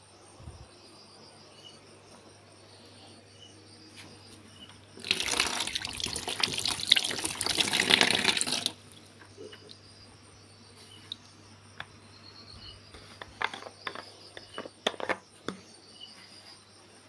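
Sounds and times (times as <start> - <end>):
water gushing from tap over hand: 5.0 - 8.8.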